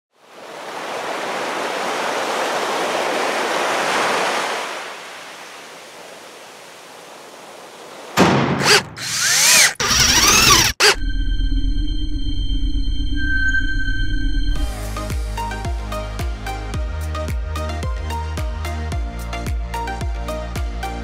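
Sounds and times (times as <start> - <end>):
rushing noise like surf: 0.2 - 8.8
chirps rising and falling: 9.0 - 14.7.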